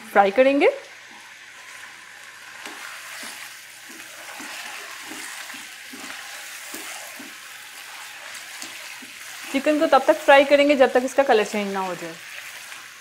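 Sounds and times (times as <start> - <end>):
chicken sizzling in hot oil: 0.2 - 13.0
spoon scraping and knocking wok: 1.1 - 10.3.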